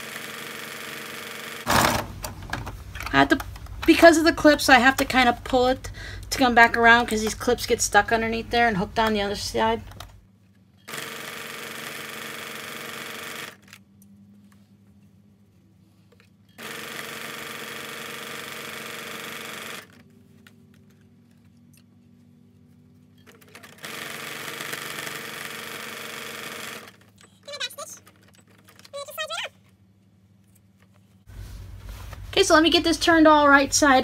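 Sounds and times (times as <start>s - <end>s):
sewing machine stitching: 0.0s - 3.3s, 10.9s - 13.7s, 16.6s - 20.0s, 23.2s - 29.3s.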